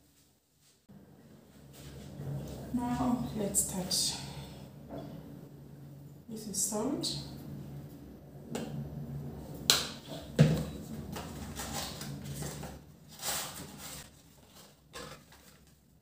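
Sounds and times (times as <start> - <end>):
paper packet rustling: 13.1 - 16.0.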